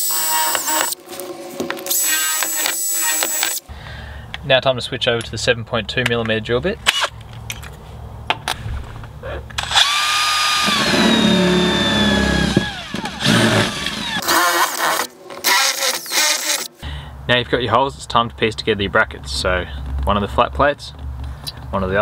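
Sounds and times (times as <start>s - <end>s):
cordless drill boring through metal: 0.0s - 1.0s, 1.9s - 3.6s, 9.6s - 16.7s.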